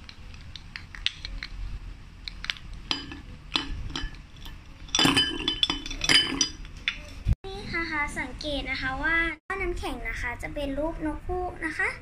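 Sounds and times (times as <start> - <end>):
ice clinking on plate: 4.9 - 7.1.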